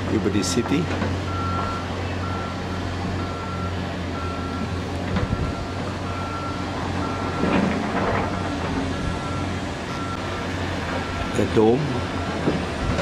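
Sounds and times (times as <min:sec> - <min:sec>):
electronic warning beeps: 0:01.3 - 0:04.7.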